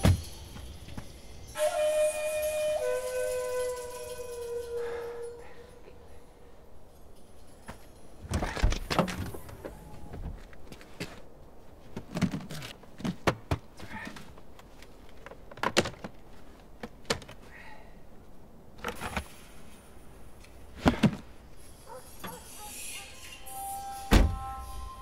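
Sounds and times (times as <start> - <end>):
objects clunking in car boot: 11.9 - 14.4, 20.8 - 21.3.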